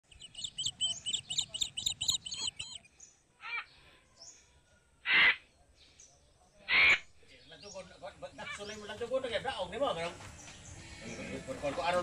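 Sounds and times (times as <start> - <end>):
birds chirping: 0.0 - 4.4, 5.4 - 12.0
loud harsh bird call: 0.1 - 3.7.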